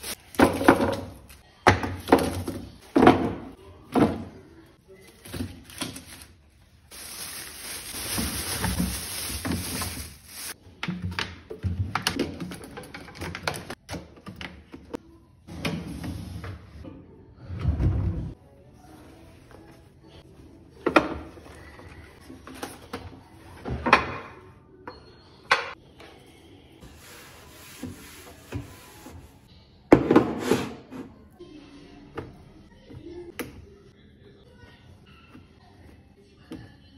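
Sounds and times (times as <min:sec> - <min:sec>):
plastic bag crinkling: 0:05.6 - 0:10.6.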